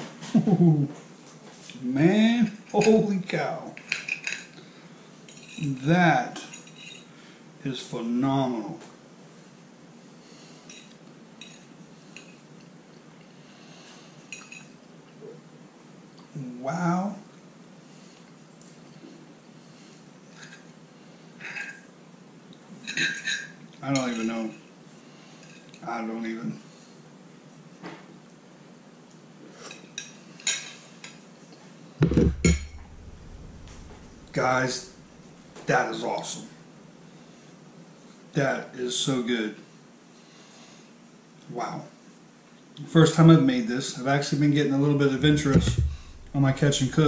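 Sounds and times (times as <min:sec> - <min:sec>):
low room hum: 0:00.0 - 0:47.0
loud dull thumps: 0:32.0 - 0:34.4, 0:45.2 - 0:47.0.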